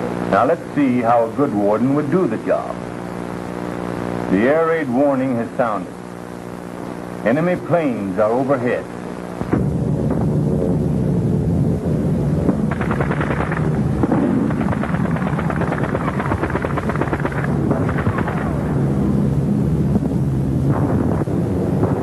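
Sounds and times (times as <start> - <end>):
aircraft engines droning: 9.0 - 22.0
explosions: 9.4 - 11.1, 12.4 - 22.0
gunfire bursts: 12.5 - 18.8.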